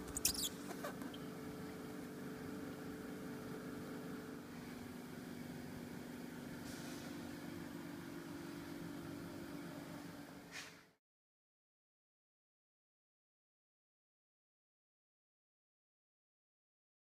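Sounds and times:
low hum with faint hiss: 0.0 - 10.8.

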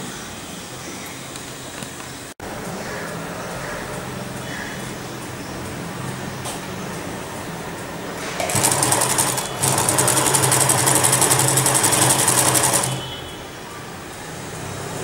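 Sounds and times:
sewing machine stitching: 8.4 - 13.2.

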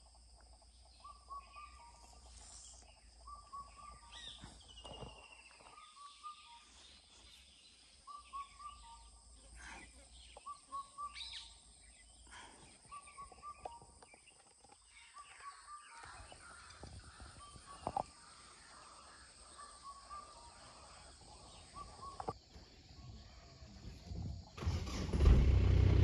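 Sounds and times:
faint forest ambience: 0.0 - 26.0
bird call: 1.0 - 7.3, 8.0 - 14.2, 14.8 - 22.4.

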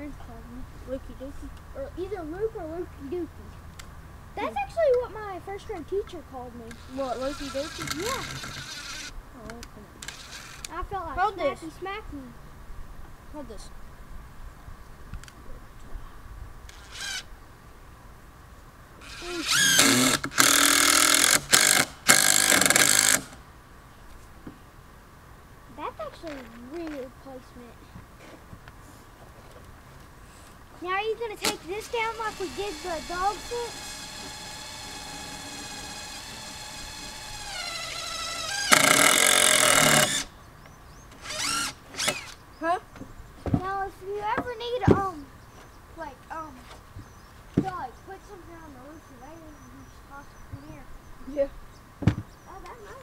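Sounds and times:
cordless drill whining: 6.7 - 9.1, 10.0 - 10.7, 16.7 - 17.3, 19.0 - 23.4, 31.4 - 40.3, 41.2 - 42.4.

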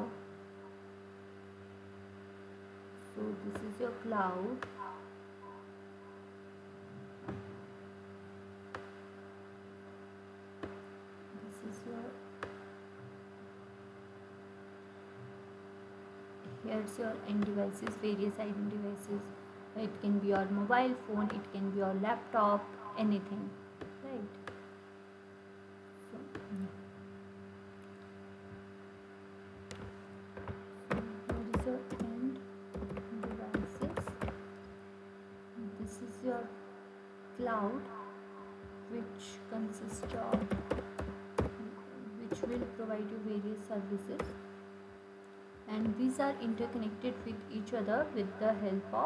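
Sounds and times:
faint small noises: 0.0 - 49.0
low electrical hum: 0.0 - 49.0
keyboard keystrokes: 32.8 - 34.4.

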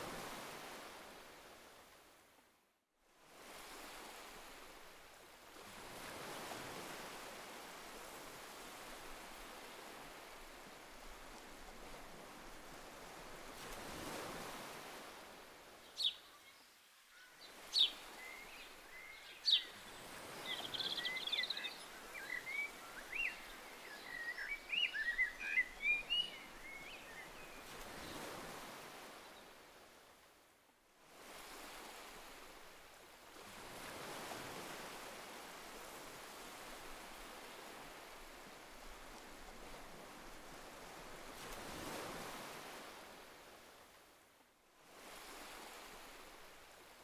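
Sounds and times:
sea waves washing in: 3.2 - 16.0, 31.0 - 43.9, 44.8 - 47.0
bird twittering song: 15.9 - 28.2.

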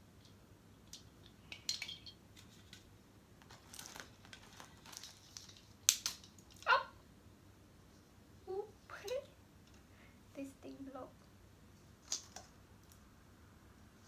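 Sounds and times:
plastic packaging crinkling: 2.4 - 6.6
ornaments clicking: 5.0 - 6.7.

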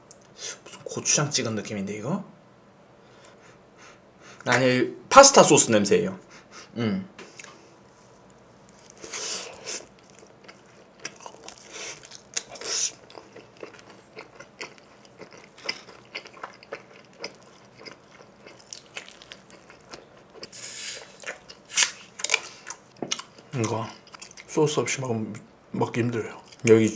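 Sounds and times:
chewing pizza crust: 7.4 - 24.6.

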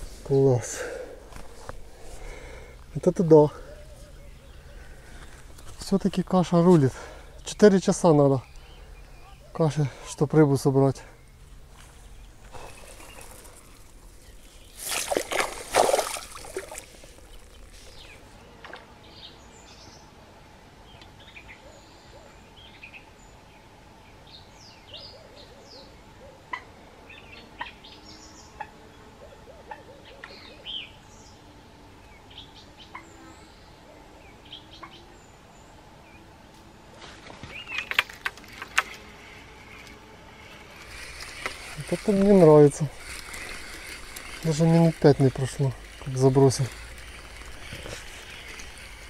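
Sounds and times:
small birds chirping: 0.0 - 20.2, 27.1 - 49.0
water splashing: 12.6 - 18.0.

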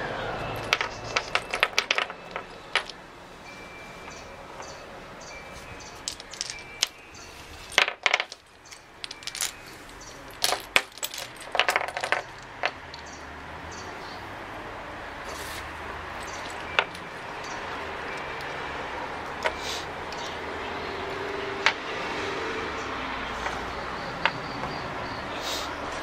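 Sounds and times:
small tokens clattering on wood: 0.5 - 3.0, 5.5 - 13.2, 16.2 - 17.3, 19.2 - 20.3, 21.6 - 21.8, 24.2 - 24.8.

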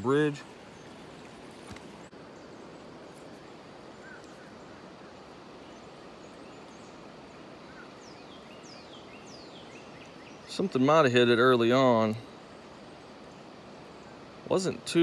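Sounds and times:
high falling bird calls: 0.0 - 14.8
river water flowing: 0.0 - 15.0
faint bird chirps: 0.7 - 10.8.

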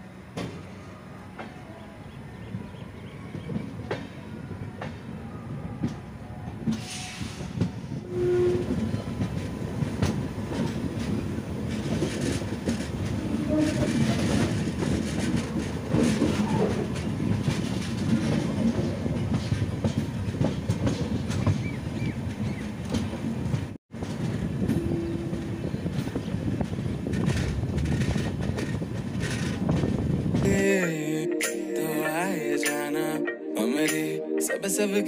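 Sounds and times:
train wheels clattering over rail joints: 6.7 - 30.6.

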